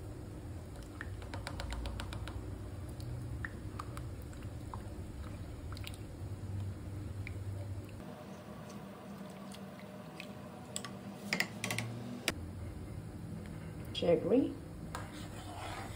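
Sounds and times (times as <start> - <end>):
steady low hum: 0.0 - 15.9
plastic spoon scraping a pan: 15.0 - 15.9.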